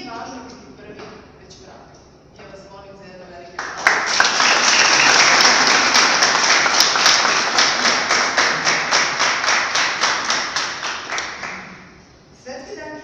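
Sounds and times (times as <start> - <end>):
audience applauding: 3.6 - 12.0
close rhythmic clapping: 3.6 - 12.0.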